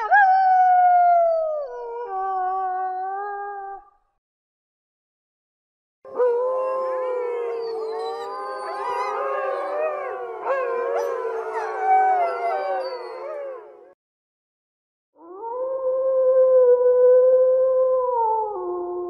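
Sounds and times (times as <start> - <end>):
single wolf howling: 6.1 - 14.0
wolves howling in chorus: 6.1 - 14.0.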